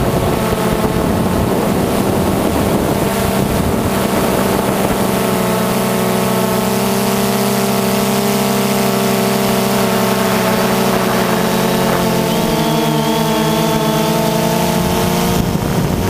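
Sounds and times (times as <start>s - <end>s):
drone propellers whining: 0.0s - 16.0s.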